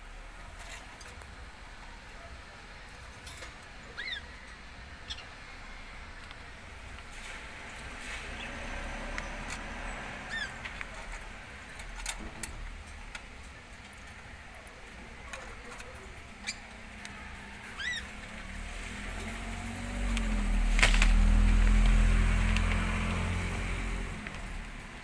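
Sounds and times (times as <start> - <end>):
parakeet chirps: 3.9 - 4.3.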